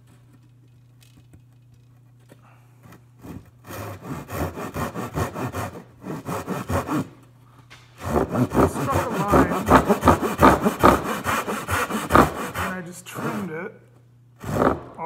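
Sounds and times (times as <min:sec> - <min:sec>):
hand saw cutting wood: 0:02.8 - 0:07.2, 0:08.0 - 0:13.7, 0:14.4 - 0:15.0.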